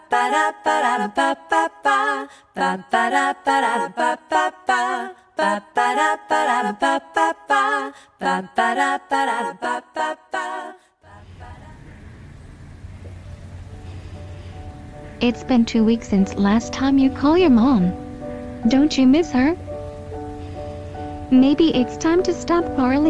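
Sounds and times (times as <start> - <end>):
a cappella voices singing: 0.0 - 12.1
steady low hum: 11.1 - 23.0.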